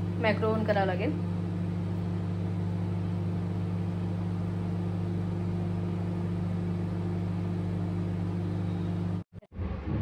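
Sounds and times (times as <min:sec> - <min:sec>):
microwave oven humming: 0:00.0 - 0:09.3.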